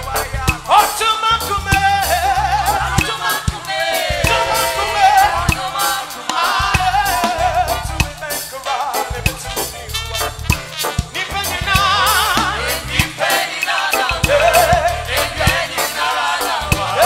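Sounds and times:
bass: 0.0s - 17.0s
steady drum beat: 0.0s - 17.0s
singers singing in harmony: 1.7s - 9.3s, 11.2s - 17.0s.

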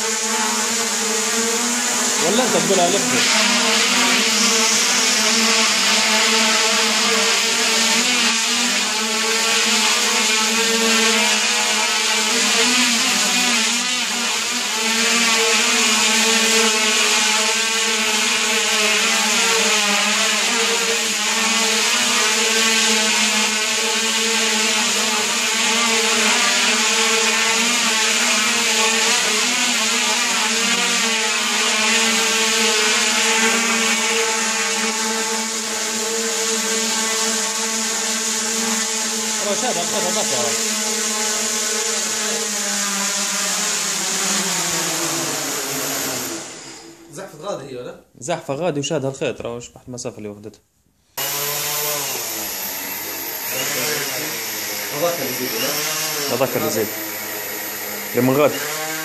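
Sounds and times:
quadcopter motors buzzing: 0.0s - 47.5s, 51.2s - 59.0s
propeller wash rush: 0.6s - 10.1s, 37.4s - 46.7s, 52.1s - 59.0s.

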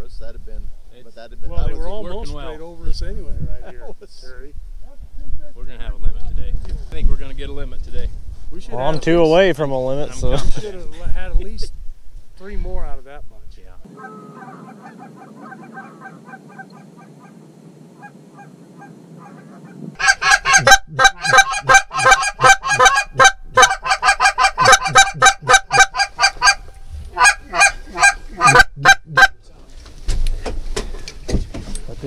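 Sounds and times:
geese honking and clucking: 13.9s - 17.4s, 18.0s - 29.4s.

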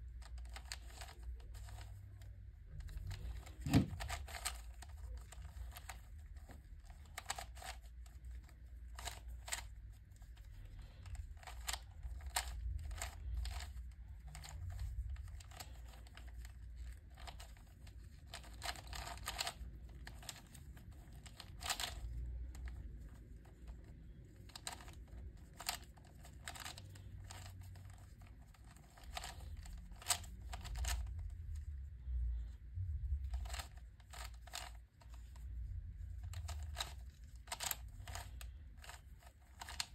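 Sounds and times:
plastic puzzle cube clicking: 0.2s - 9.7s, 11.1s - 31.2s, 33.2s - 35.5s, 36.1s - 39.9s
low rumble: 30.6s - 34.0s.

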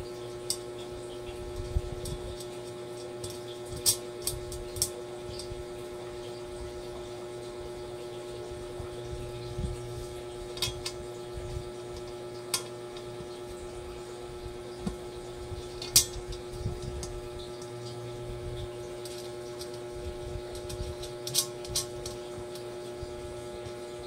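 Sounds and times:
steady hum: 0.0s - 24.0s.

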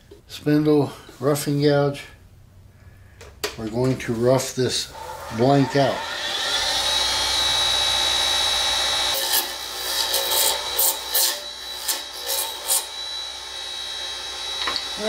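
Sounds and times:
lathe motor whining: 4.8s - 15.0s.

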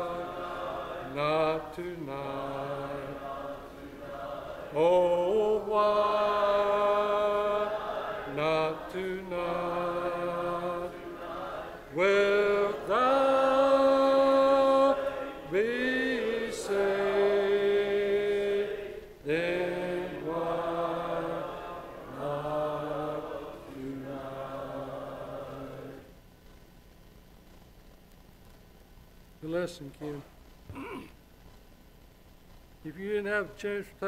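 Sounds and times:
man singing a slow hymn: 0.0s - 21.4s.

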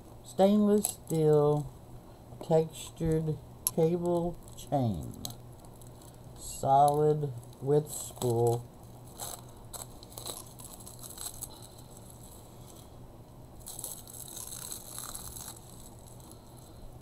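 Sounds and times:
plastic packaging crinkling: 3.7s - 16.8s.

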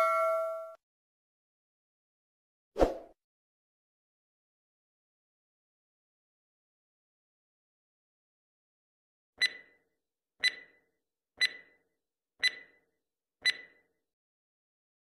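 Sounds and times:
sharp ringing timer ticks: 9.4s - 9.8s, 10.4s - 10.8s, 11.4s - 11.8s, 12.4s - 12.8s, 13.4s - 13.9s.

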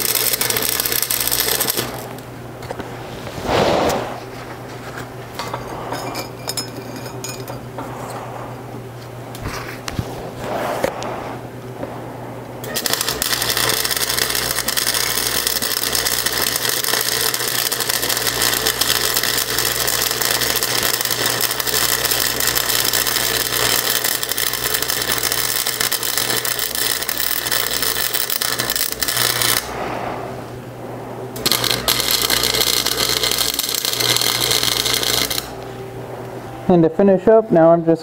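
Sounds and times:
welder arc crackling: 0.0s - 4.2s, 11.9s - 29.8s, 31.0s - 36.4s
steady low hum: 0.0s - 38.0s.

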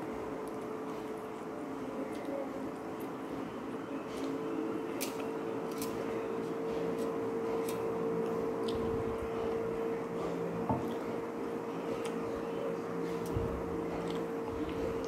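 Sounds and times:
steady hum: 0.0s - 15.0s
eating clicks and squishes: 7.0s - 9.6s, 13.2s - 15.0s.

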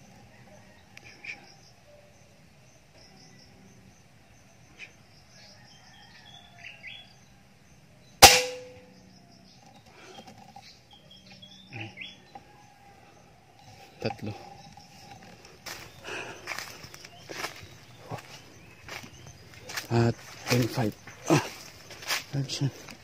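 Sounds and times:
faint bird chirps: 0.0s - 22.9s
rifle shot: 8.2s - 8.9s.

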